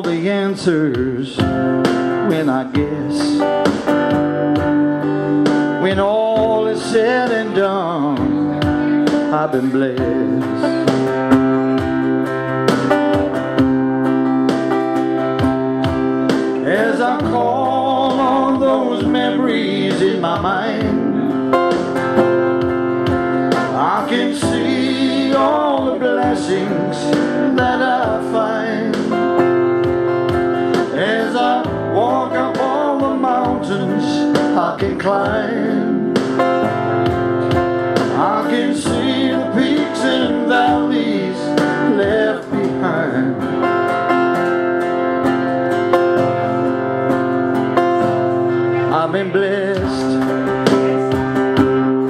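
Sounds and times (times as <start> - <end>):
man singing into a microphone: 0.0 - 3.8, 5.6 - 11.0, 16.4 - 21.8, 23.5 - 29.8, 30.7 - 36.5, 38.0 - 43.6, 48.8 - 50.8
acoustic guitar strumming: 0.0 - 52.0.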